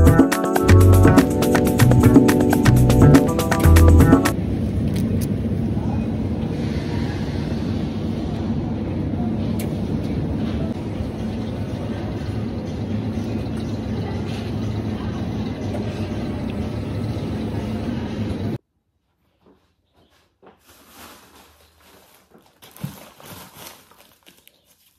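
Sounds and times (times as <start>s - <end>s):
supermarket background hum: 4.3s - 18.6s, 20.4s - 24.9s.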